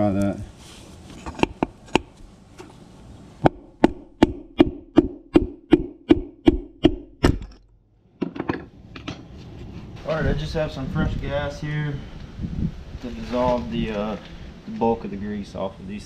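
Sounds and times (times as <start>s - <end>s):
hammer striking metal: 3.5s - 7.7s.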